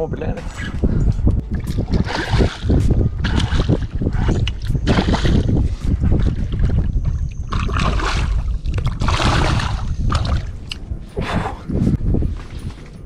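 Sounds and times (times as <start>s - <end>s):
steady low rumble: 0.0s - 13.0s
fish splashing at water surface: 7.5s - 10.6s.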